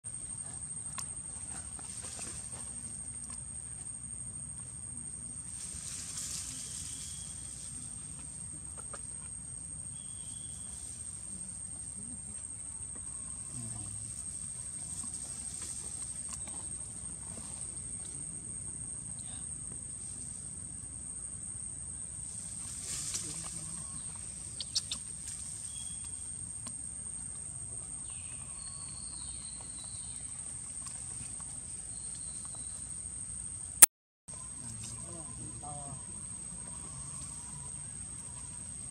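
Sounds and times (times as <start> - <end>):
faint low clucking calls: 23.8 - 25.2.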